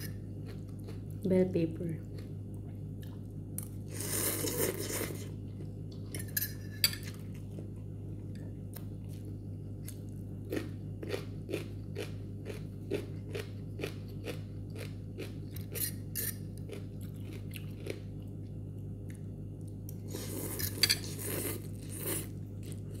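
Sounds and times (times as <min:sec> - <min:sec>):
low steady hum: 0:00.0 - 0:23.0
chewing crunchy pepper: 0:00.3 - 0:01.2, 0:07.1 - 0:23.0.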